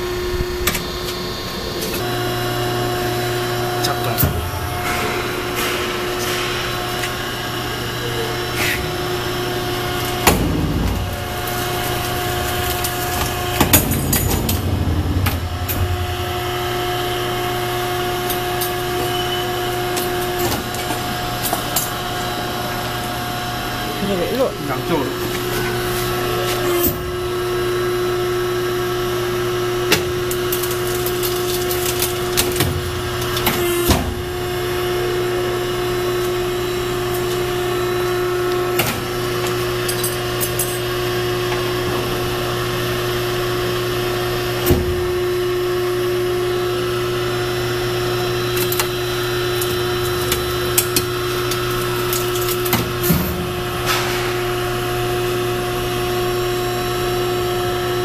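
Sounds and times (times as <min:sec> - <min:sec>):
hydraulic power unit humming: 0:00.0 - 0:58.0
metal knocks and clanks: 0:04.1 - 0:08.0, 0:52.6 - 0:54.5.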